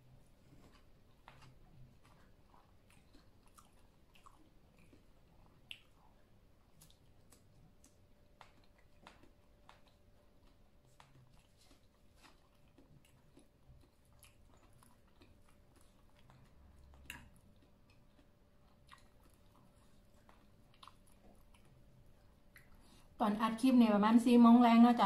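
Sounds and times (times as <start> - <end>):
person chewing: 0.0 - 23.2
wet mouth clicks: 3.0 - 6.2, 16.2 - 19.4, 22.5 - 22.8.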